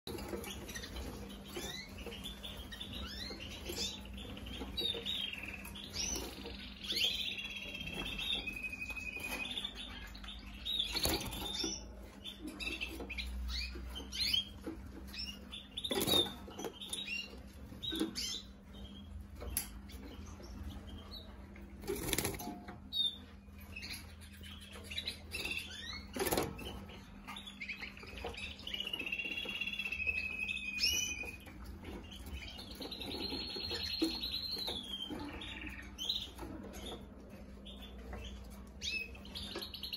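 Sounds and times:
canaries chirping: 0.0 - 39.9
trilled bird song: 0.0 - 39.9.

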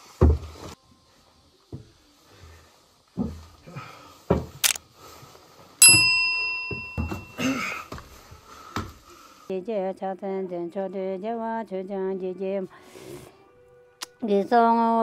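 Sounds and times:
bright bell ding: 5.8 - 7.6.

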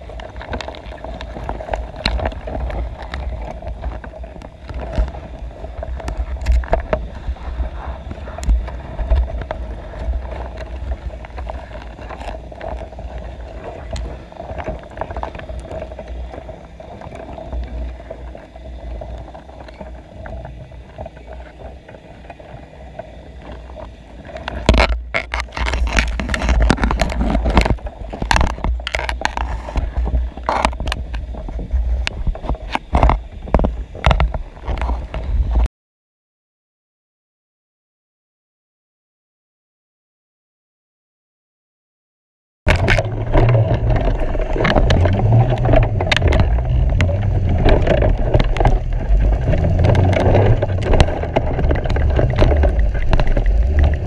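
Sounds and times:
faint constant hum: 0.0 - 35.7, 42.7 - 54.0
underwater low rumble: 0.0 - 35.7, 42.7 - 54.0
knocks and scrapes: 24.4 - 35.7, 42.7 - 54.0.

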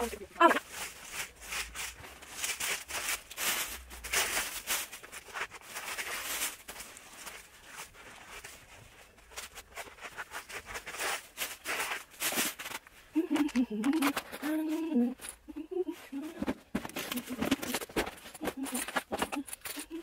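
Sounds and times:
paper rustling: 0.0 - 20.0
plastic bin bag crinkling: 0.0 - 20.0.

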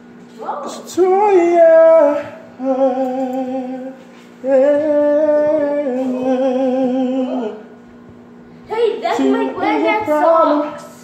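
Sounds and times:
man singing without words: 0.8 - 7.7.

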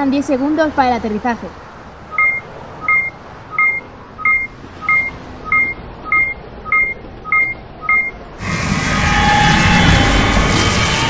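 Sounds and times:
electronic countdown beeps: 2.1 - 8.2.

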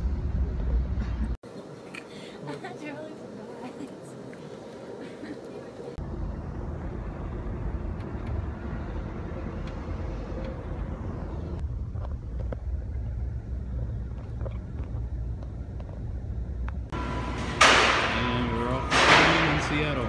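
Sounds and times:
vehicle road noise from inside: 5.8 - 17.2.

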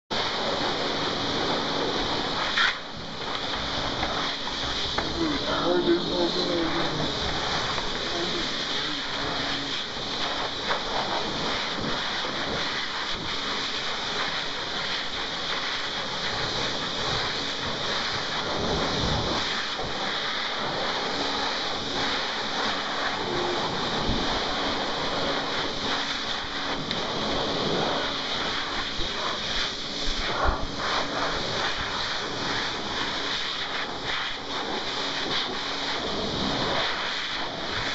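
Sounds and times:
hairdryer blowing air: 0.1 - 37.9.

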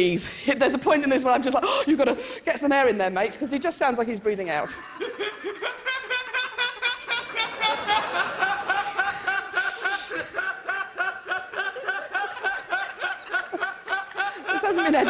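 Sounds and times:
young man laughing hard: 4.7 - 15.0.

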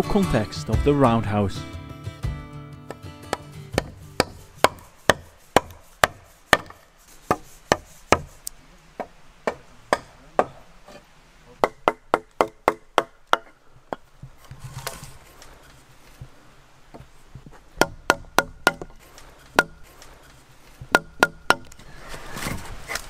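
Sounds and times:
hatchet chopping wood: 2.9 - 8.4, 9.0 - 10.6, 11.6 - 14.1, 17.8 - 20.2, 20.8 - 21.8.

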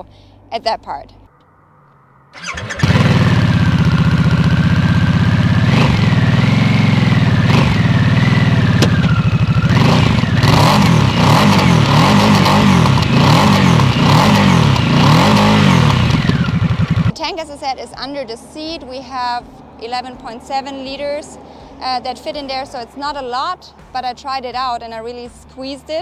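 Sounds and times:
motorcycle throttle blips: 1.3 - 17.2
motorcycle engine starting and idling: 1.9 - 23.5.

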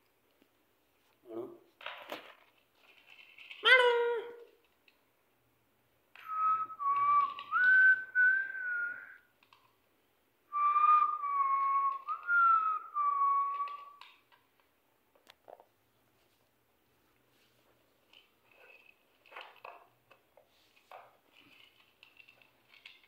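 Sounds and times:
person whistling: 6.2 - 9.3, 10.5 - 14.0.

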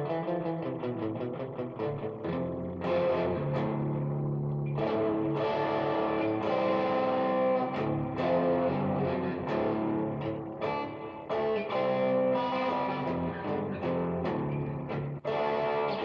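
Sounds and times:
electric guitar playing blues: 0.0 - 16.0.

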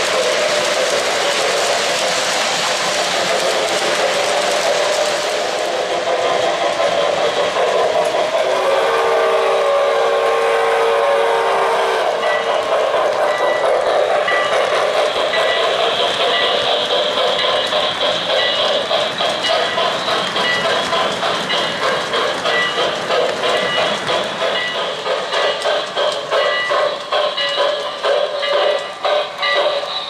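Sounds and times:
model trains rolling on track: 0.0 - 30.0
multi-tone train whistle: 8.4 - 14.6, 26.4 - 30.0.

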